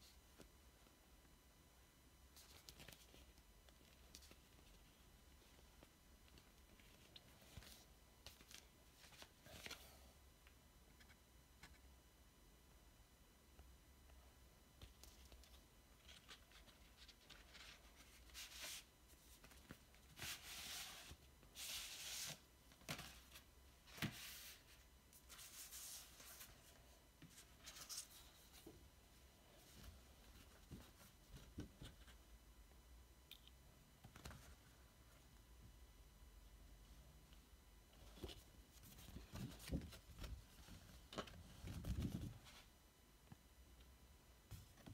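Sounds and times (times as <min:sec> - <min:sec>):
rustling of card sleeves: 0:14.9 - 0:28.8.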